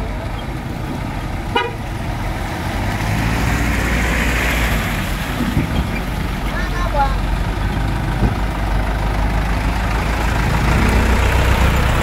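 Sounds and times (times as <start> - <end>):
truck engines running: 0.0 - 12.0
vehicle horn toot: 1.5 - 1.8.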